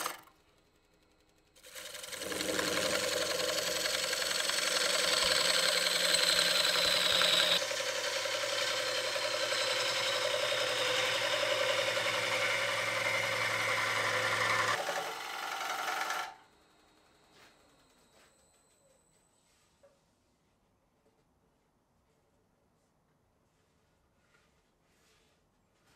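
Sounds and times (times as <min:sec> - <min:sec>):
gouge cutting wood on a lathe: 0:01.6 - 0:16.4
lathe motor hum: 0:01.6 - 0:16.5.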